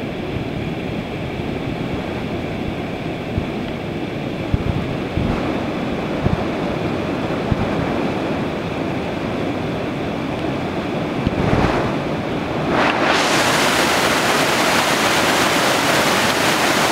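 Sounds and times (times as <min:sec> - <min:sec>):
river rapids rushing over rocks: 0:12.7 - 0:16.9.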